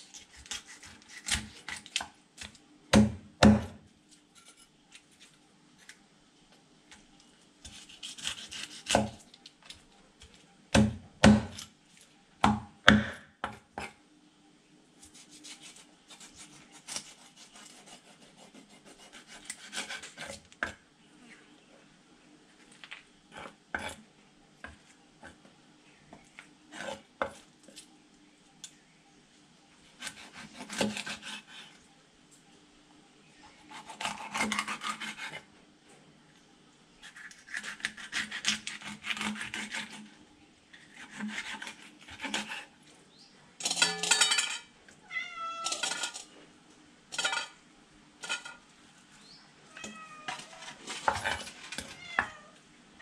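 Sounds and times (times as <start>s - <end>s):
knife chopping on wooden block: 10.8s - 11.6s
cat meowing: 45.0s - 45.8s, 49.7s - 50.6s, 51.9s - 52.6s.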